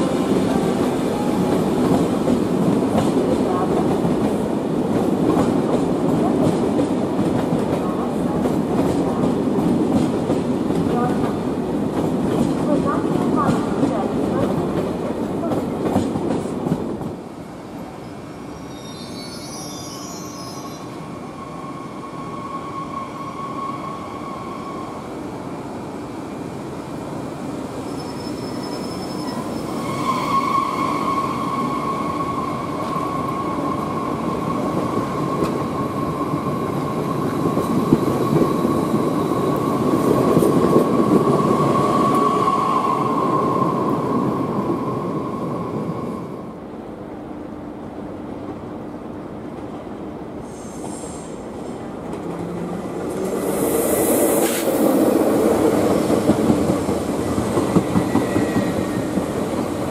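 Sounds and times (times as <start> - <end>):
train rumble: 0.0 - 18.0, 31.2 - 59.9.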